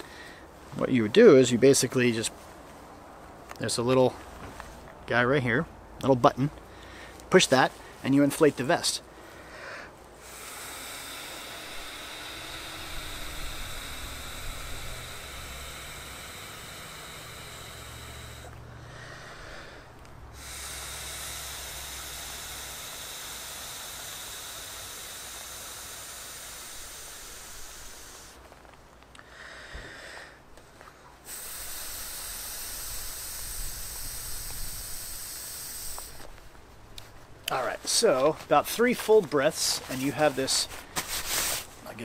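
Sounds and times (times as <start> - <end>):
breath blowing into inflation valve: 9.3 - 28.6, 31.2 - 36.5, 38.2 - 41.8.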